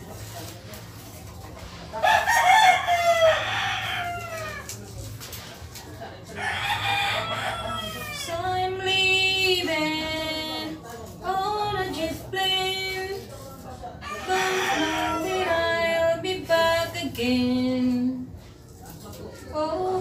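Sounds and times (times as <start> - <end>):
roosters crowing: 2.0 - 4.8, 6.3 - 9.3, 14.0 - 16.1.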